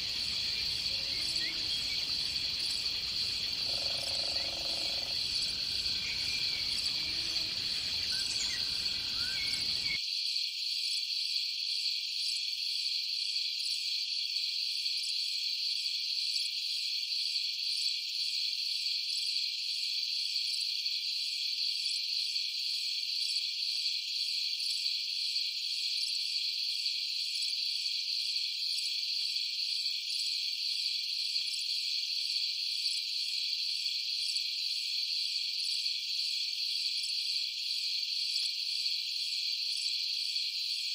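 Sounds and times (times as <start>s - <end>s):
high-pitched insect chorus: 0.0s - 40.9s.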